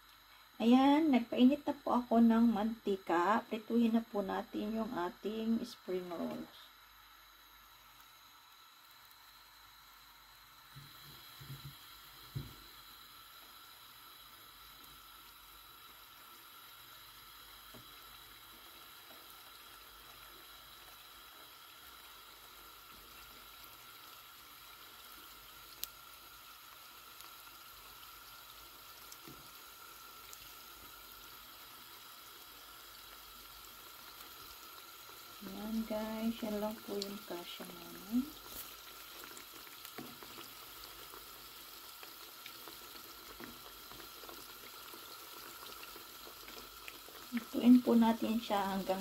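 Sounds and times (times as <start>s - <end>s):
hot oil sizzling: 0.0s - 49.0s.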